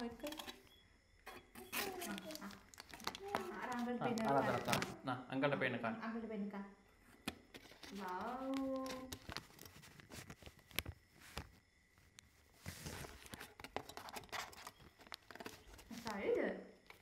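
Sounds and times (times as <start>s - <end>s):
packaging crinkling rustle: 1.7s - 5.0s, 7.5s - 16.2s.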